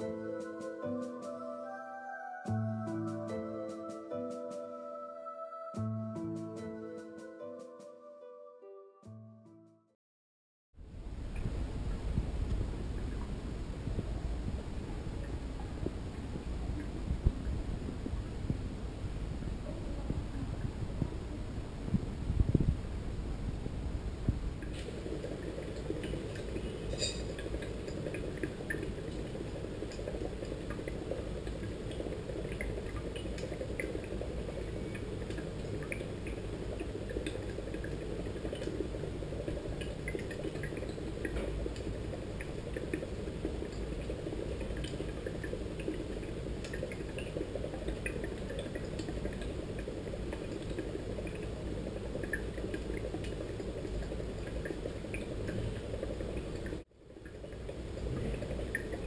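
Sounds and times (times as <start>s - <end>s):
water bubbling with small pops: 11.2s - 18.7s, 24.2s - 59.0s.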